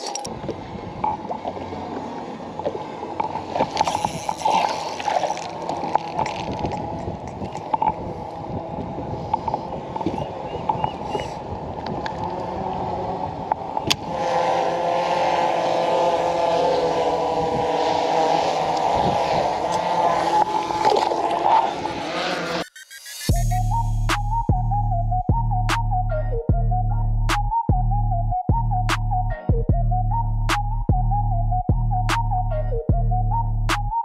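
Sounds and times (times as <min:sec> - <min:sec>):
droning motor hum: 0:00.2 - 0:22.6
wind on microphone: 0:00.3 - 0:02.0, 0:03.3 - 0:22.3.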